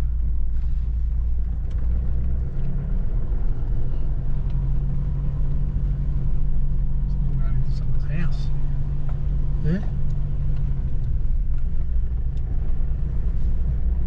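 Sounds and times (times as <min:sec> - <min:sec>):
car engine rumble: 0:00.0 - 0:14.0
road noise inside vehicle: 0:00.0 - 0:14.0.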